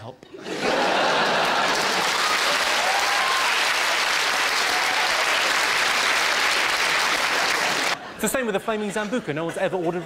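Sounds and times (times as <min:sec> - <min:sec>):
people laughing and whooping: 0:00.4 - 0:05.7, 0:07.1 - 0:08.2
audience applause: 0:00.6 - 0:08.0.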